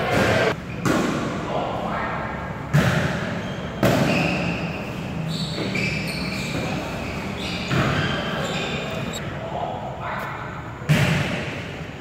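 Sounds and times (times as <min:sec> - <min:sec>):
volleyball hit echoing in gym: 0:00.0 - 0:01.8, 0:02.4 - 0:06.9, 0:07.6 - 0:09.2, 0:10.8 - 0:12.0.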